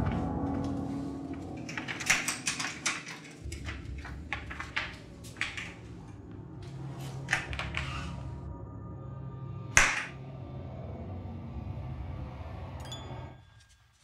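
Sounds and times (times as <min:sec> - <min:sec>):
door handle and latch clicking: 0:01.6 - 0:05.8.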